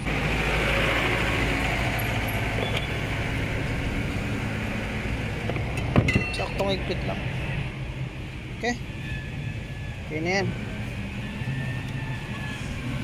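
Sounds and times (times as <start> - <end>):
motor vehicle hiss and rumble: 0.0 - 13.0.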